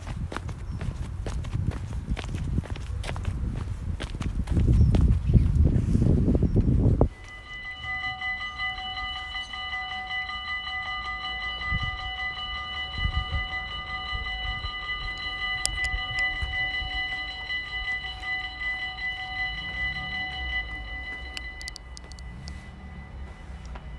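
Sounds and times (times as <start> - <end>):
level crossing bell ringing: 7.1 - 23.9
faint low rumble: 15.9 - 23.9.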